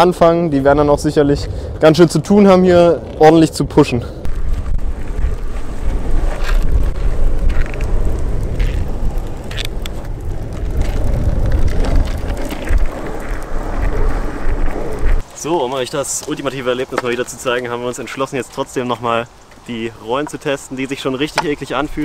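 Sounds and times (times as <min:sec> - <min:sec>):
wind noise on microphone: 0:00.0 - 0:15.2
skateboard wheels rolling on asphalt: 0:00.0 - 0:22.0.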